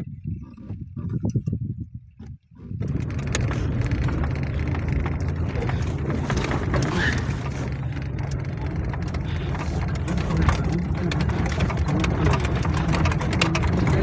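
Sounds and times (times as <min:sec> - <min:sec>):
vehicle rumble inside cabin: 0:00.0 - 0:14.0.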